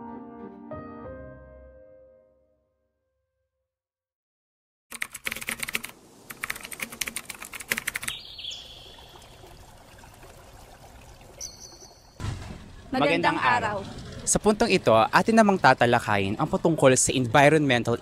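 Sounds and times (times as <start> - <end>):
faint steady hiss: 5.6 - 11.2.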